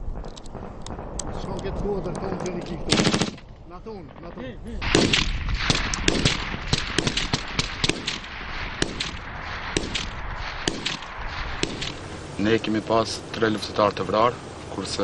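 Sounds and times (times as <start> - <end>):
small-arms gunfire: 2.8 - 3.5, 4.8 - 12.0.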